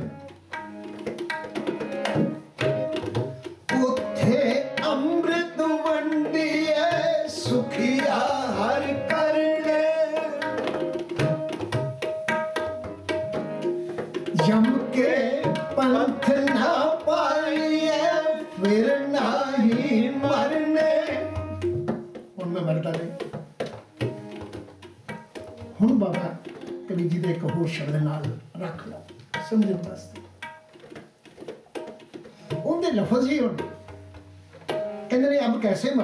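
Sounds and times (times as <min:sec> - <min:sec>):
harmonium chords: 0:00.0 - 0:03.0, 0:03.7 - 0:11.6, 0:13.1 - 0:21.7
tabla drumming: 0:00.0 - 0:36.0
man singing a hymn: 0:03.8 - 0:10.4, 0:14.5 - 0:21.4.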